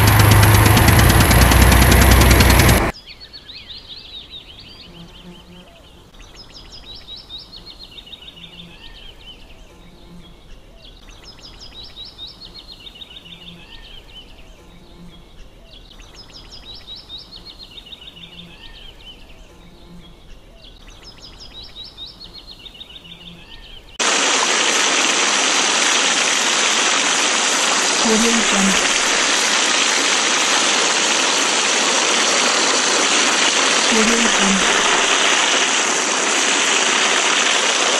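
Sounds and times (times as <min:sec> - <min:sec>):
spraying splashing water: 0:00.0 - 0:03.0, 0:24.0 - 0:37.9
outdoor background noise: 0:00.0 - 0:37.9
bird song: 0:02.9 - 0:24.0.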